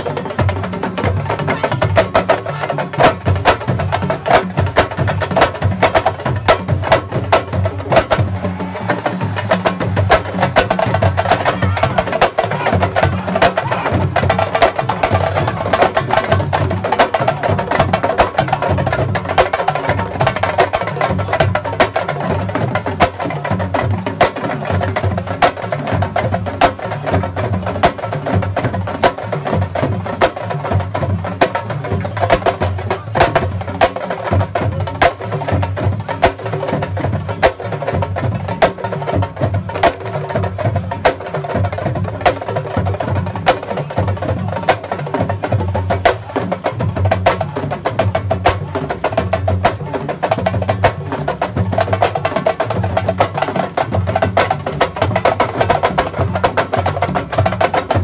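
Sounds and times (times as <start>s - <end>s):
fast drumming with slap strokes: 0.0s - 58.0s.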